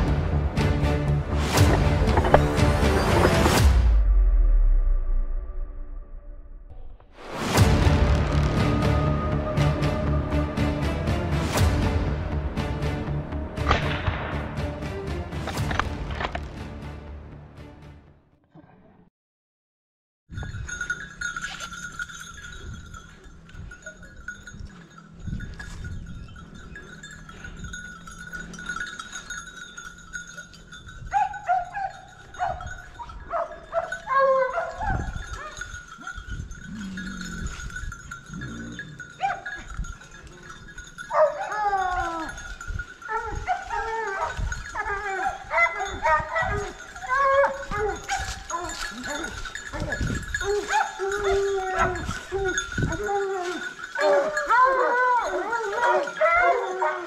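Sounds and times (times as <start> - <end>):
dog collar bells ringing: 20.3 - 57.0
hunting hounds baying: 21.2 - 57.0.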